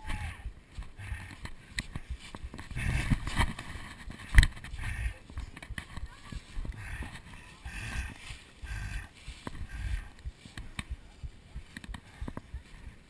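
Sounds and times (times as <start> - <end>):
footsteps on dry leaves: 1.6 - 11.8.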